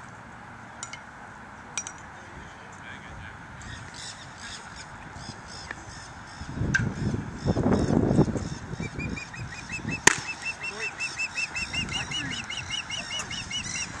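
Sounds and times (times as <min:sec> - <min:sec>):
low wind rumble: 0:00.0 - 0:14.0
bird chirping: 0:03.6 - 0:14.0
baseball smacking into mitt: 0:10.0 - 0:10.3.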